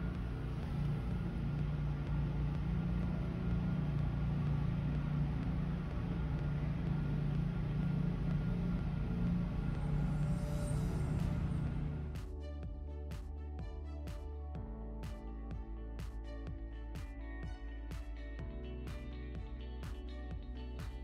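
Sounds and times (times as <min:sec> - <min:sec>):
vehicle engine and road drone: 0:00.0 - 0:12.3.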